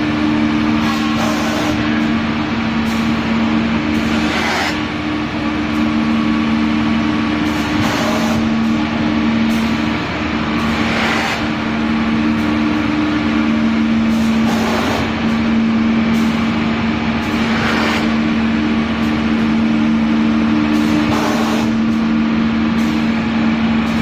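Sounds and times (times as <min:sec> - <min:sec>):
machine hum: 0:00.0 - 0:24.0.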